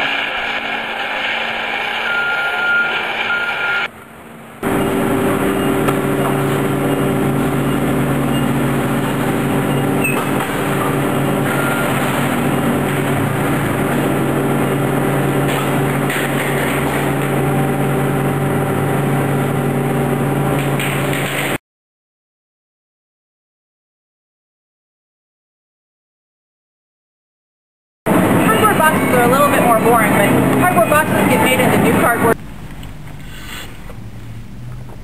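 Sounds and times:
baling machine running: 0:00.0 - 0:03.9, 0:04.5 - 0:21.6, 0:28.1 - 0:32.4
forklift engine running: 0:00.0 - 0:21.6, 0:28.1 - 0:35.0.

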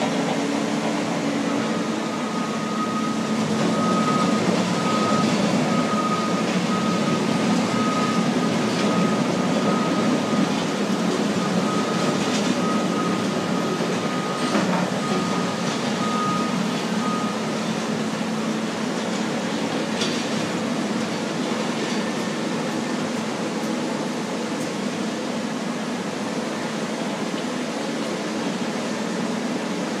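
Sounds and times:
diesel engine drone: 0:00.0 - 0:30.0
back-up alarm beeping: 0:01.4 - 0:10.5, 0:11.3 - 0:18.8.

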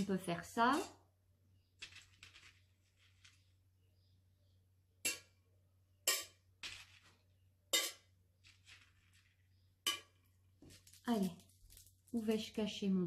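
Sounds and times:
seeds clicking on tin: 0:01.7 - 0:03.6, 0:06.1 - 0:12.7.

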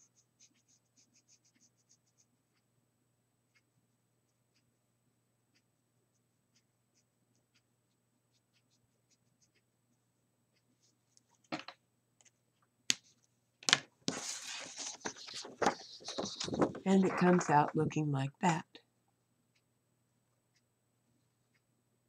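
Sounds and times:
marker nib on paper: 0:00.0 - 0:02.6, 0:06.1 - 0:07.6, 0:08.3 - 0:09.7
paper rustling on cutting mat: 0:14.0 - 0:17.7.

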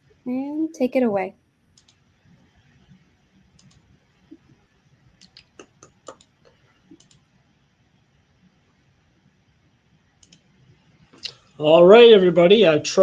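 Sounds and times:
computer mouse clicks: 0:01.8 - 0:02.0, 0:02.8 - 0:04.4, 0:05.2 - 0:07.3, 0:10.2 - 0:11.4.

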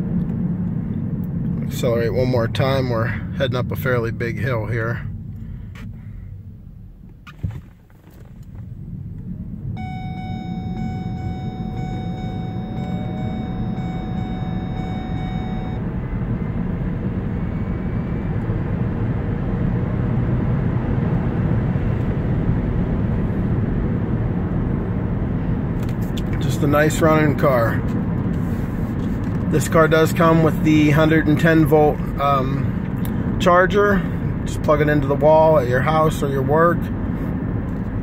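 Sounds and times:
road and tyre noise in car: 0:00.0 - 0:38.0
steady high tone: 0:09.8 - 0:15.9.

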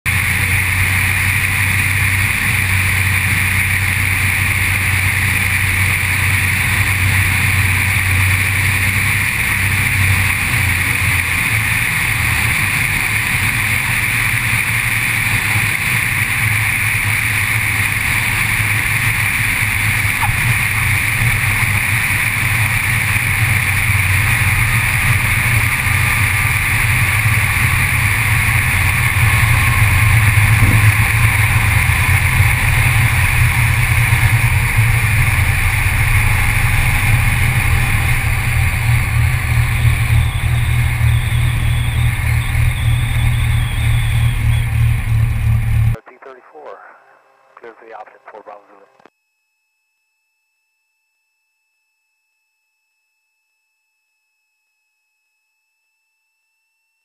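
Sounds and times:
propeller aircraft engine drone: 0:00.0 - 0:49.1.

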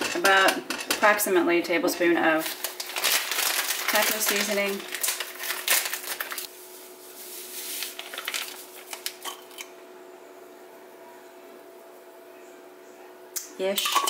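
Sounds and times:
faint steady hum: 0:00.0 - 0:14.0
plastic container crinkling: 0:02.4 - 0:06.5, 0:07.5 - 0:09.2
seasoning shaken from container: 0:02.4 - 0:09.2.

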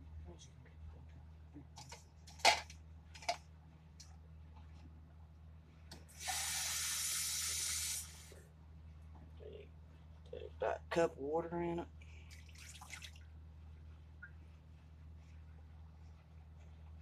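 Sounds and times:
faucet water running: 0:06.1 - 0:08.3.

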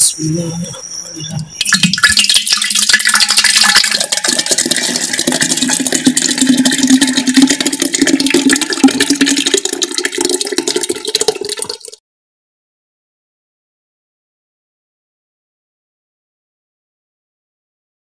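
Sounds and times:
cream pouring into a pot: 0:01.7 - 0:12.0.

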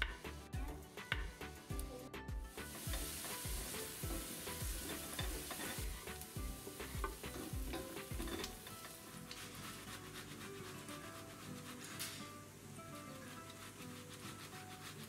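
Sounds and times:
background music with a beat: 0:00.0 - 0:08.7
onion sizzling in a pot: 0:00.0 - 0:15.0.

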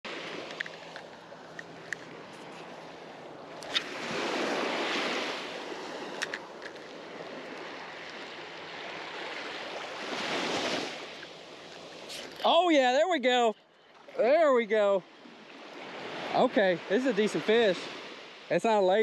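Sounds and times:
surf washing onto beach: 0:00.1 - 0:13.0.

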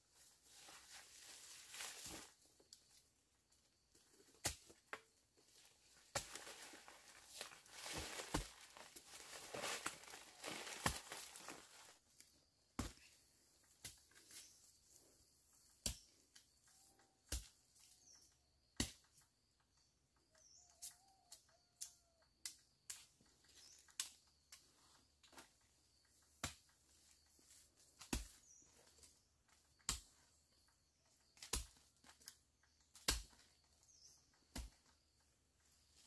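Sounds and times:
rustling: 0:06.2 - 0:12.0.

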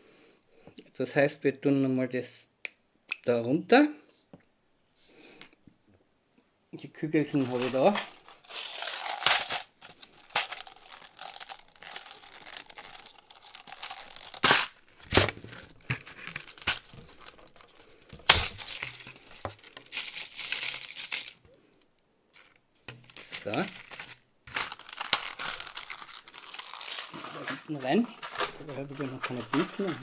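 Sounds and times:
plastic bag crinkling: 0:07.3 - 0:21.6, 0:22.3 - 0:30.0.

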